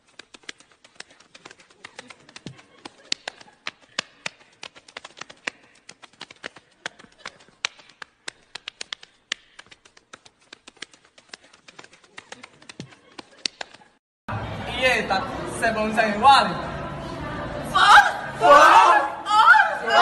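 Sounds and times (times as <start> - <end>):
hands slapping body: 0.0 - 14.0.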